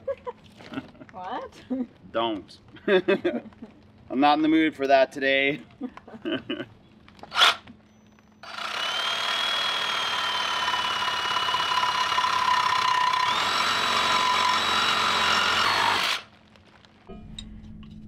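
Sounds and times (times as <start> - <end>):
electric power tool motor whining: 7.2 - 7.7, 8.4 - 16.3.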